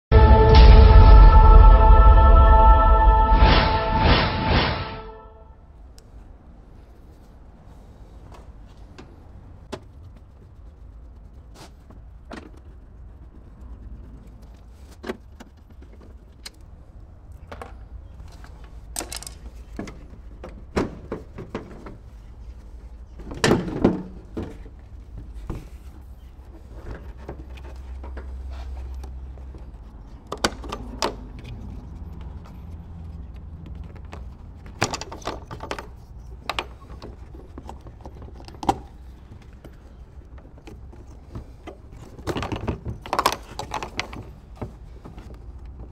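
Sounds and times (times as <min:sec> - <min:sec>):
low rumble: 0:00.1 - 0:05.6.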